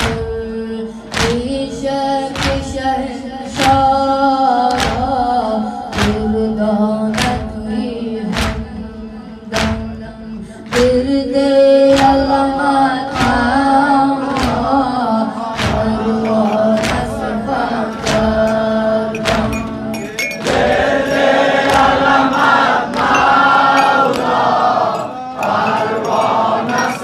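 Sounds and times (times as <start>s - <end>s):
person singing a lament: 12.9s - 27.0s
chest-beating slaps: 15.5s - 27.0s.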